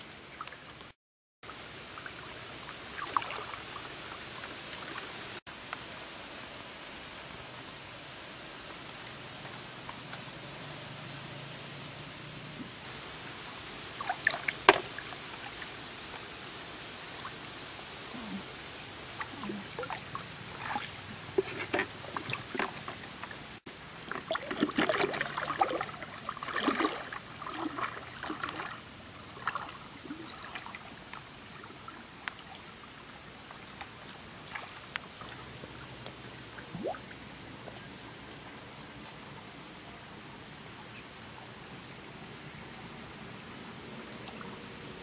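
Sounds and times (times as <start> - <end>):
water sloshing as person wades: 13.8 - 16.3, 18.1 - 38.0.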